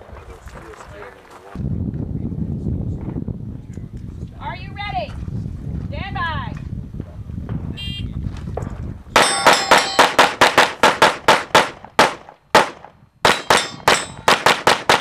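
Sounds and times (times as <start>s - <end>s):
metallic ring of steel targets: 9.2s - 10.4s, 13.2s - 14.5s
rapid gunfire: 9.2s - 15.0s.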